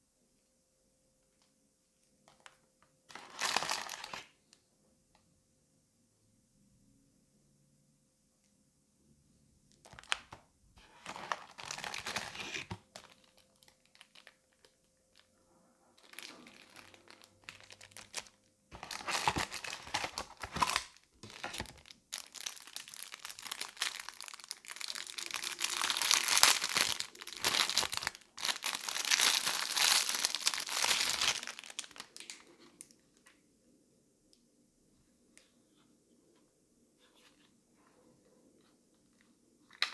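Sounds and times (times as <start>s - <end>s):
plastic wrapper crinkling and tearing: 2.3s - 4.4s, 9.8s - 15.4s, 16.0s - 33.0s.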